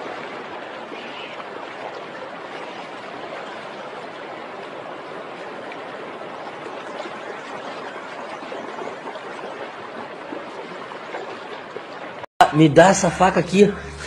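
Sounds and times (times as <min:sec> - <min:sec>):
dog wading through water: 0:00.0 - 0:12.3.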